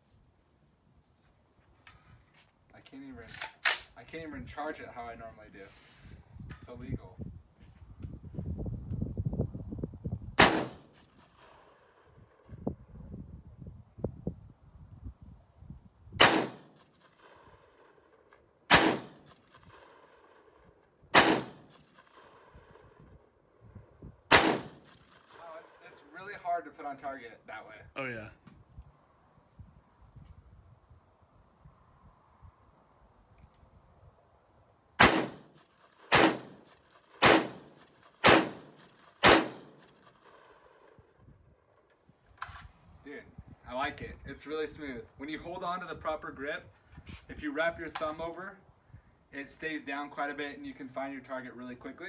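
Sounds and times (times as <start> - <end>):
pistol gunshots: 10.4 - 11.9, 16.2 - 17.7, 18.7 - 20.4, 21.1 - 22.5, 24.3 - 25.4, 35.0 - 40.8.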